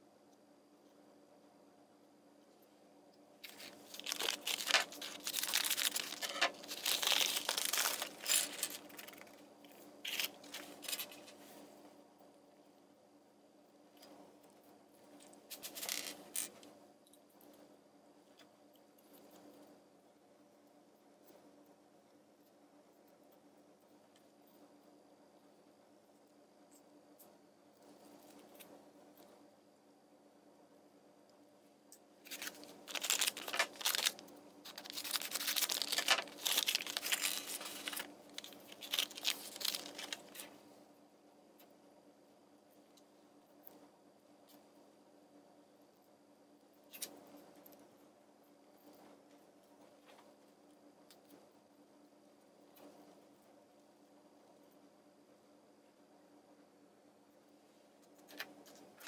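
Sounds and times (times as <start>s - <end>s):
faint steady hum: 0.0s - 59.0s
plastic parts clicking and rattling: 3.4s - 9.3s, 32.3s - 40.5s
plastic packet crinkling and tearing: 3.4s - 9.4s, 10.0s - 11.3s, 15.5s - 16.5s, 32.2s - 40.5s.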